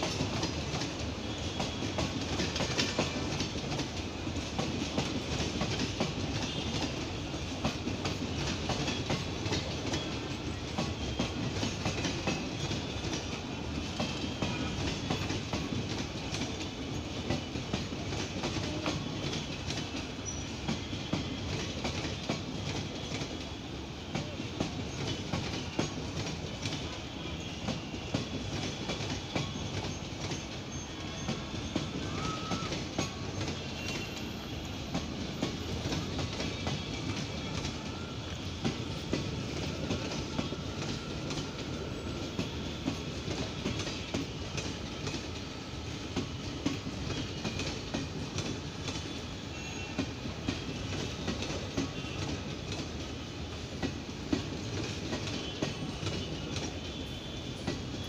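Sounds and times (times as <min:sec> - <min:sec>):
train rumble: 0:00.0 - 0:58.0
faint wheel squeal: 0:32.0 - 0:34.2.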